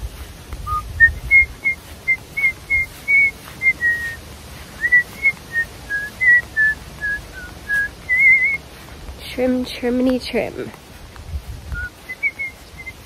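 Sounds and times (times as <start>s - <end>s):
person whistling a tune: 0.7s - 4.2s, 4.8s - 8.6s, 11.7s - 13.0s.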